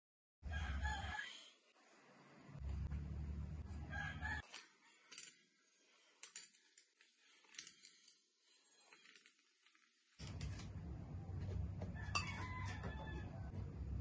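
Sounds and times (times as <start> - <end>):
spoon clinking against glass bowl: 12.1 - 12.4.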